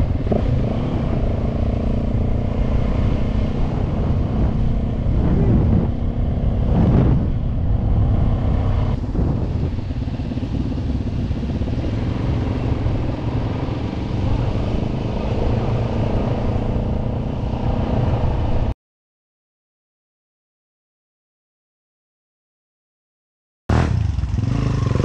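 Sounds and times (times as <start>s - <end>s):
motorcycle engine running: 0.0s - 18.7s, 23.7s - 25.0s.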